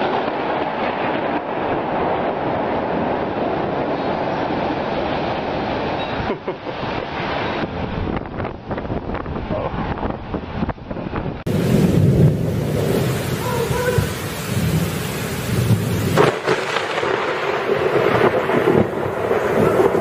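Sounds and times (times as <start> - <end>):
low thunder rumbling: 0.0 - 20.0
heavy rain hissing: 11.5 - 20.0.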